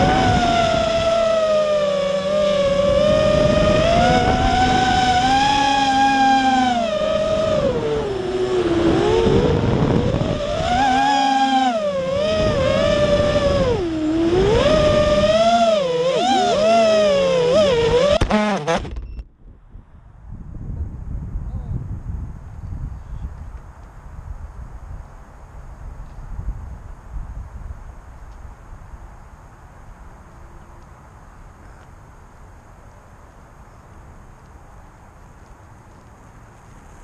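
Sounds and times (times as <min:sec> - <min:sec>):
quadcopter motors whining: 0:00.0 - 0:19.2.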